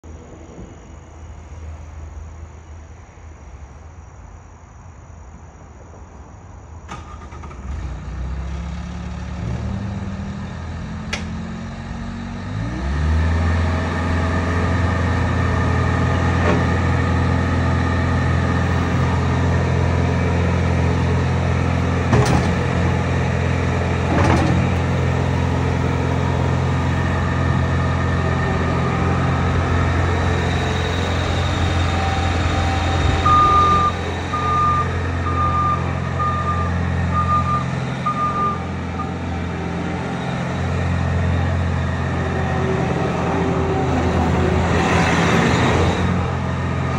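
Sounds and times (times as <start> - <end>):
diesel engine running: 6.9 - 46.9.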